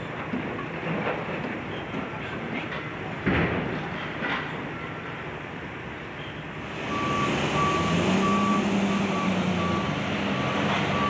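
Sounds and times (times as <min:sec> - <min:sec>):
excavator diesel engine running: 0:06.6 - 0:11.0
backup alarm beeping: 0:06.9 - 0:11.0.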